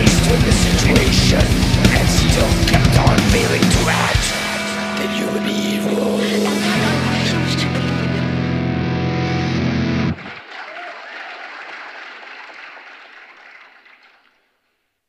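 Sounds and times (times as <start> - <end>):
held guitar chord: 0.0 - 10.2
audience applause: 10.2 - 14.5.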